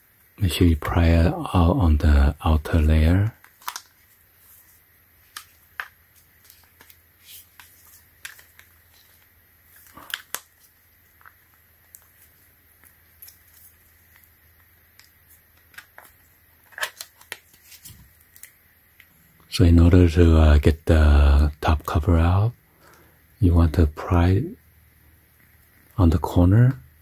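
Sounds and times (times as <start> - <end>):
plastic phone case clicking and snapping: 15.6 - 17.4.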